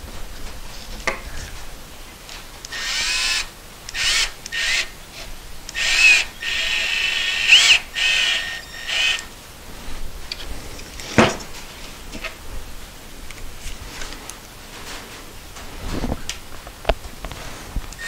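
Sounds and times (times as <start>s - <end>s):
cordless driver motor whine: 2.7s - 4.9s, 5.7s - 9.3s.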